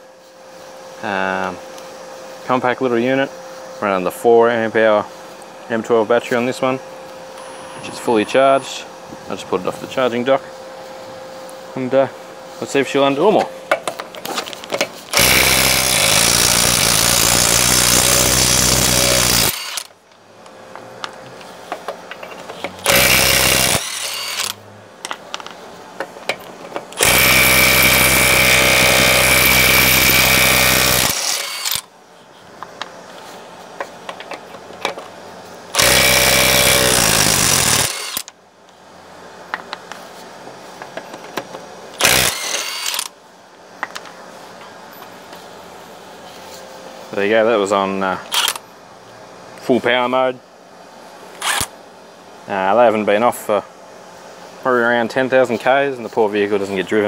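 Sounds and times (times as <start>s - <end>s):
impact wrench hammering: 15.1s - 19.8s, 22.8s - 24.5s, 27.0s - 31.8s, 42.0s - 43.0s.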